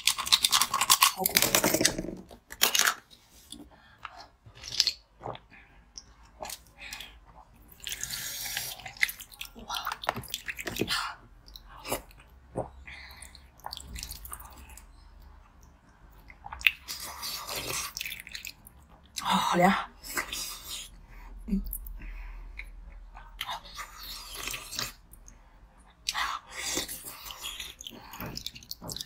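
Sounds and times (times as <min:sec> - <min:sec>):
chewing crunchy ice: 0:00.0 - 0:01.5, 0:26.1 - 0:29.0.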